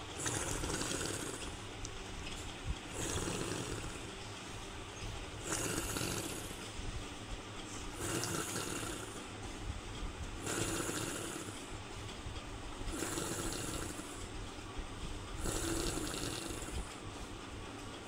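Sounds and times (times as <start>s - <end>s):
snoring rasping breathing: 0.0s - 1.6s, 2.9s - 4.1s, 5.4s - 6.6s, 7.9s - 9.3s, 10.4s - 11.7s, 12.9s - 14.3s, 15.4s - 16.9s.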